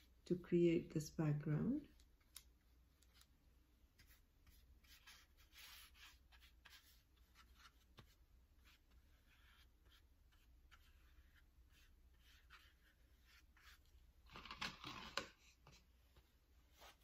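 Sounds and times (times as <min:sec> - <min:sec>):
paintbrush swishing on paper: 0:04.0 - 0:13.9, 0:16.7 - 0:17.0.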